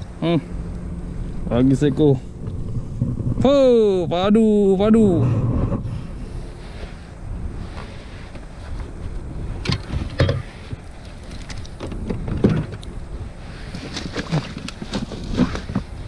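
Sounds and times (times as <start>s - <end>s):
wind buffeting microphone: 0.0s - 16.0s
handling knocks and clatter: 9.6s - 12.9s.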